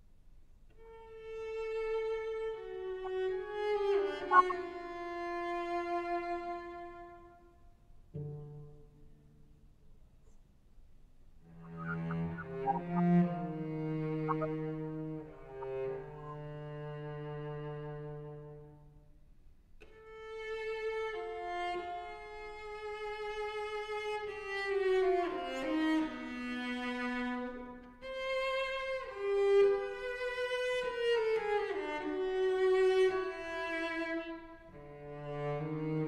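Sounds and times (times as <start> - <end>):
cello playing slow melody: 0.7 - 9.6, 11.4 - 19.2, 19.8 - 36.0.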